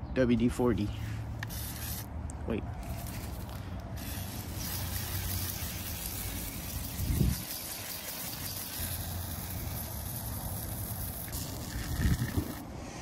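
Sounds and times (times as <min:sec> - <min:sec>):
aerosol can spraying hiss: 0:01.4 - 0:02.1, 0:04.0 - 0:12.6.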